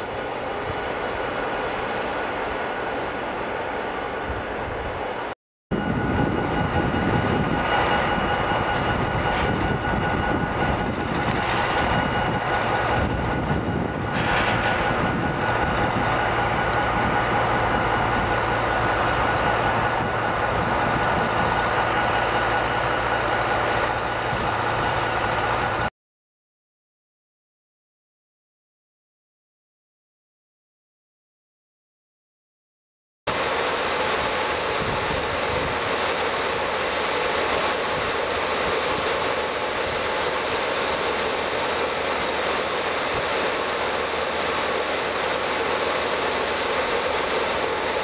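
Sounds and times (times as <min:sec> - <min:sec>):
diesel locomotive engine running: 0:00.0 - 0:25.9, 0:33.3 - 0:48.0
engine whine: 0:00.0 - 0:25.9, 0:33.3 - 0:48.0.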